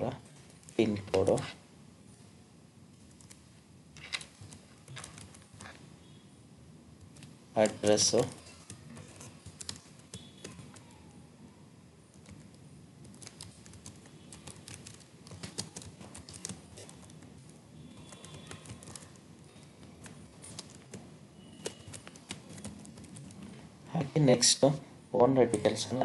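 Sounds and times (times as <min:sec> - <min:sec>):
typing on a computer keyboard: 0:03.1 - 0:03.4, 0:04.0 - 0:05.8, 0:07.0 - 0:11.0, 0:12.1 - 0:23.6.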